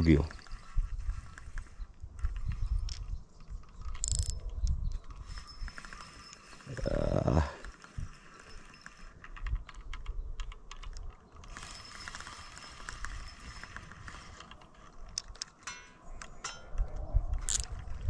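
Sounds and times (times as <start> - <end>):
fishing reel clicking: 3.7 - 4.5, 5.1 - 10.0, 11.4 - 15.5, 17.4 - 17.8.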